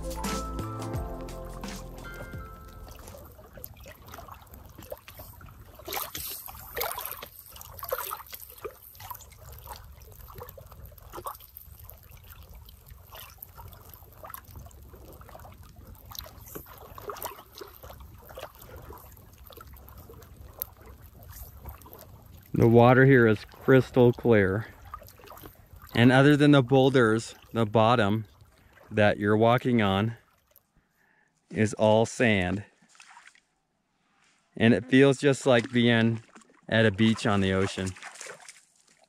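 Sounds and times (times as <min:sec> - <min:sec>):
small waves lapping on shore: 0:01.3 - 0:30.8, 0:31.6 - 0:33.5, 0:34.9 - 0:39.0
small splashes: 0:02.0 - 0:30.8, 0:32.3 - 0:33.6, 0:35.0 - 0:39.0.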